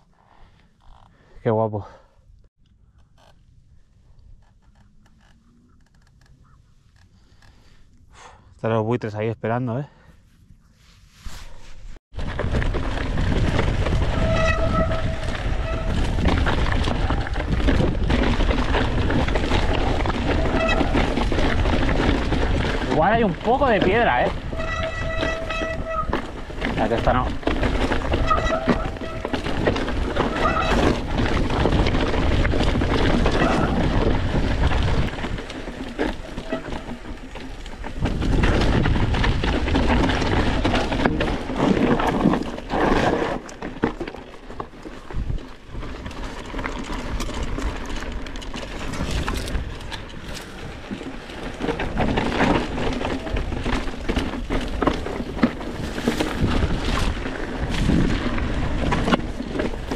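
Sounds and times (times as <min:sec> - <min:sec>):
bike rattling over rocks: 0:12.1 - 0:59.9
tyres crunching over stones: 0:12.1 - 0:59.9.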